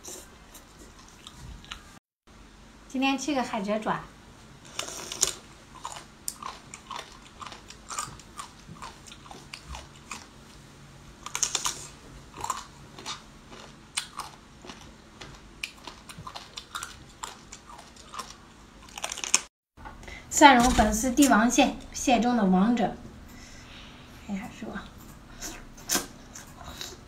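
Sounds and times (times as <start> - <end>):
crunchy chewing: 4.7 - 10.6, 11.2 - 19.5.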